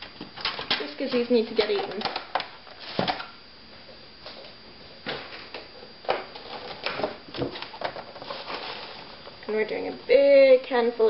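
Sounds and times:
containers knocking and clicking: 0:00.2 - 0:03.3.

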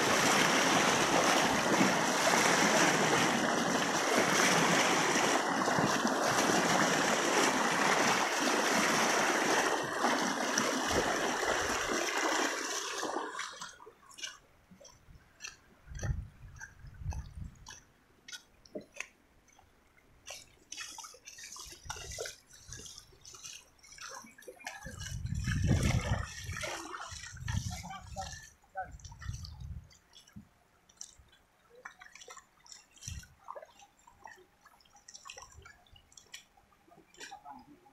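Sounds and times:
river water rushing over sand: 0:00.0 - 0:14.8.

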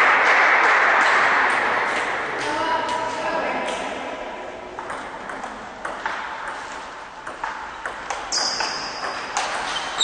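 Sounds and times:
table tennis ball clicking: 0:07.2 - 0:09.8
high squeak: 0:08.3 - 0:10.0.

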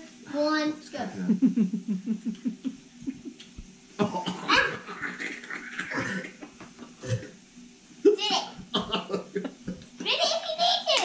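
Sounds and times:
people laughing: 0:01.2 - 0:03.4, 0:08.7 - 0:09.8.

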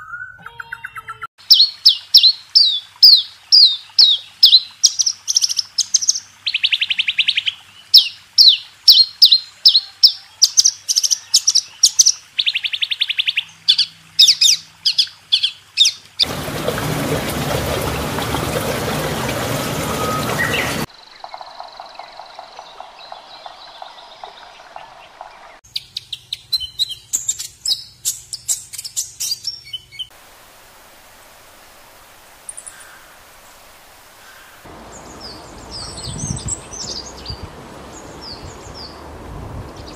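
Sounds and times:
bird whistling song: 0:00.0 - 0:07.4, 0:19.4 - 0:30.1.

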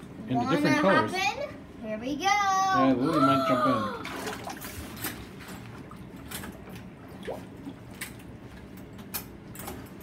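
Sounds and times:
bathwater sloshing: 0:04.0 - 0:09.2
small splashes and drips: 0:04.0 - 0:09.3.

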